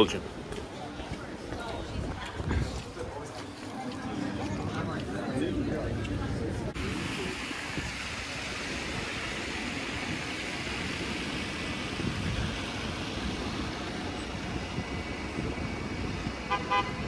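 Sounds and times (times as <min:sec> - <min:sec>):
traffic on wet street: 0:00.0 - 0:17.0
vehicle horn toot: 0:16.5 - 0:17.0.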